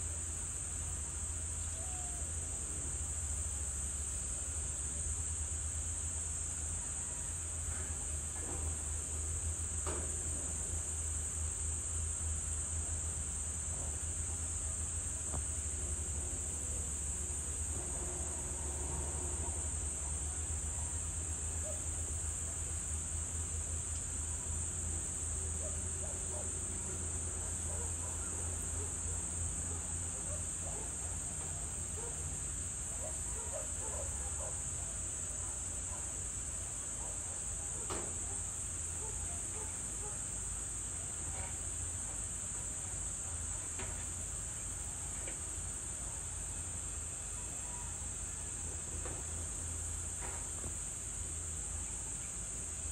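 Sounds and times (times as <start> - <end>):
insects chorus: 0.0 - 52.9.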